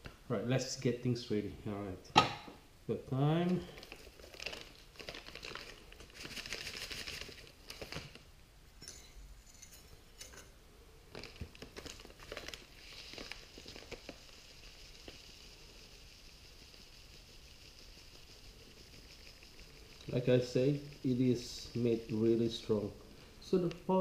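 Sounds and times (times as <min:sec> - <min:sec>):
soft steady hiss: 0:00.0 - 0:24.0
plastic packet crinkling: 0:03.5 - 0:08.2, 0:11.1 - 0:16.6.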